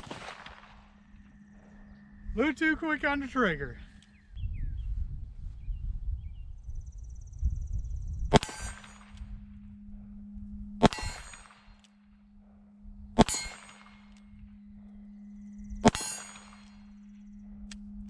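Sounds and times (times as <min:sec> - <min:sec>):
steel plate clanging: 0:13.2 - 0:14.1, 0:15.8 - 0:17.0.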